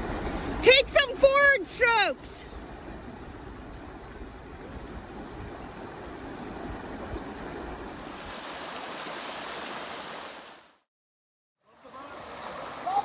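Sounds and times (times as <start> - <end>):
river water rushing over rocks: 7.8 - 10.7, 11.7 - 13.0.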